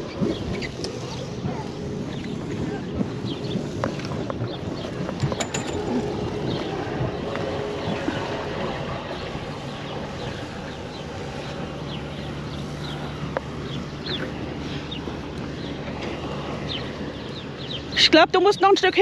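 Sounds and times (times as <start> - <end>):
small birds chirping: 0.0 - 5.8, 6.4 - 19.0
boat engines idling: 0.0 - 19.0.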